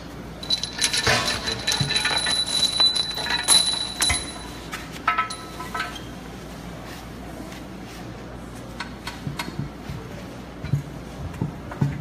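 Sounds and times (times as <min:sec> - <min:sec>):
metal-on-metal clinks and knocks: 0:00.4 - 0:06.0.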